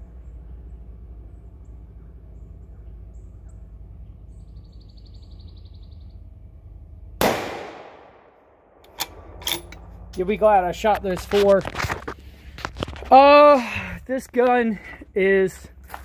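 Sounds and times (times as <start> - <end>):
faint low rumble: 0.0 - 16.0
bird chirps and trill: 0.2 - 6.3
rifle shot: 7.2 - 9.7.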